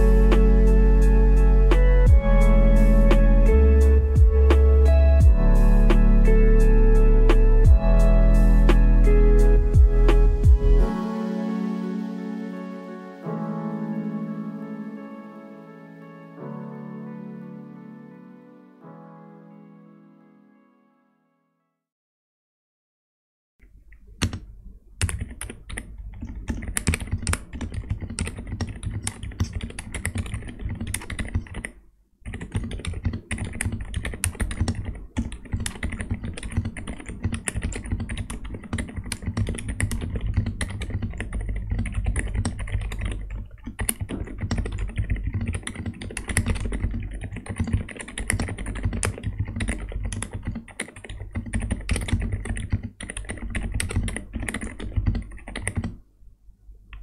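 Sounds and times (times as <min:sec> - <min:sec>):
mechanical keyboard typing: 0:24.2 - 0:56.0.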